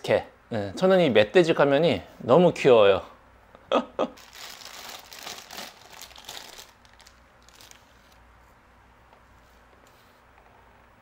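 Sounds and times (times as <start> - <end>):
plastic bags crinkling: 4.2 - 8.2.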